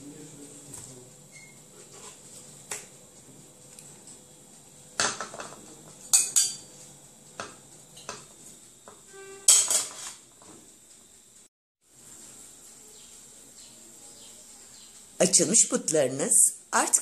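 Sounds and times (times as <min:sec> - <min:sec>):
metal spatula scraping tray: 0:09.1 - 0:10.2.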